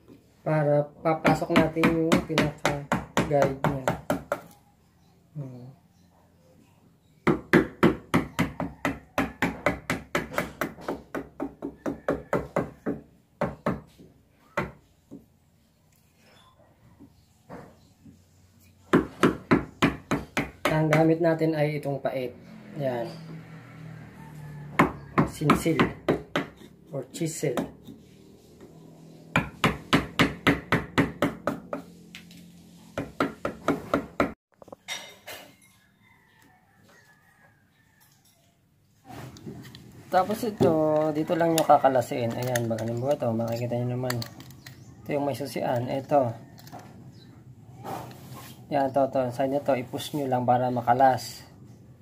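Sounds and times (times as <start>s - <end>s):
hammer striking wood chisel: 1.2s - 4.6s, 7.2s - 13.9s, 18.9s - 21.1s, 24.7s - 28.0s, 29.3s - 31.9s, 33.0s - 34.4s.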